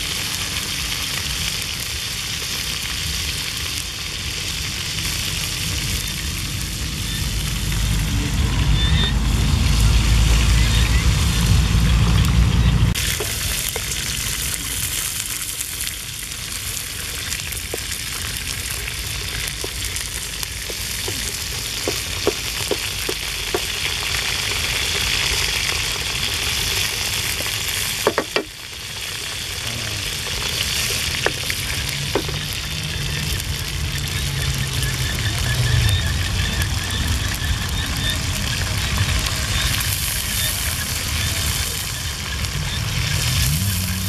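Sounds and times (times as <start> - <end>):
meat sizzling in oil: 0.0 - 44.0
oil popping: 0.0 - 44.0
wooden spatula stirring in pan: 13.0 - 37.8.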